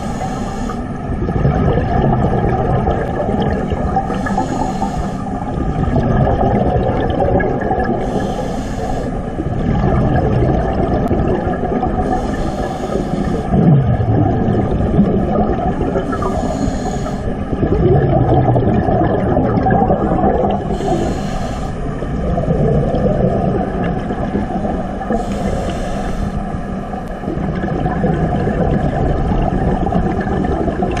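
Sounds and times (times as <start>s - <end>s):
regulator breathing hiss: 0.0s - 1.0s, 4.0s - 5.5s, 8.0s - 9.4s, 12.0s - 13.5s, 16.0s - 17.4s, 20.7s - 22.0s, 25.1s - 26.6s
bubbling exhaled air: 0.0s - 31.0s.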